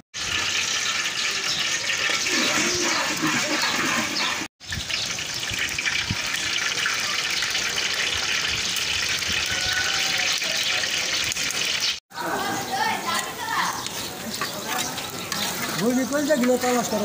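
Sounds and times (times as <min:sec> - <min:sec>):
eggs frying in sizzling oil: 0:00.2 - 0:12.0.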